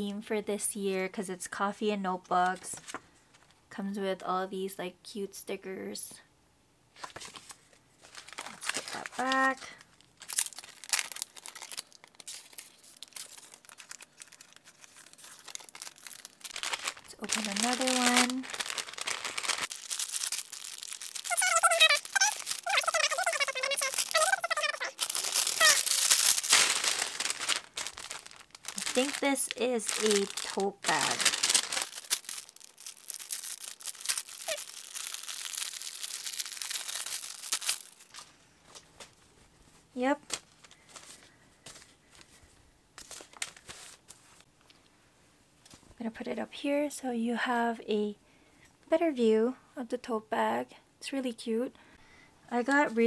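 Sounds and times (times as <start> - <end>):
paper and packaging crinkling: 7.0 - 39.2, 40.1 - 44.5
plastic tearing: 8.1 - 38.3.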